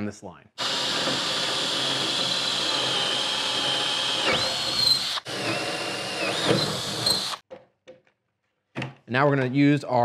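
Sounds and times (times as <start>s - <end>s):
cordless drill boring into wood: 0.6s - 7.4s.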